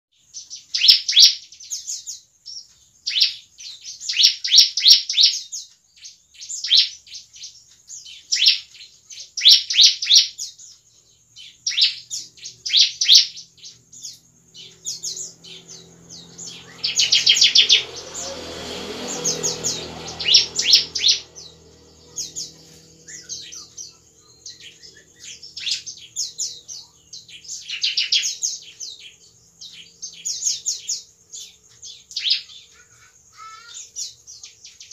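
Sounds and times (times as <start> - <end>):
bird chirping song: 0.1 - 34.9
low hum: 14.6 - 25.6.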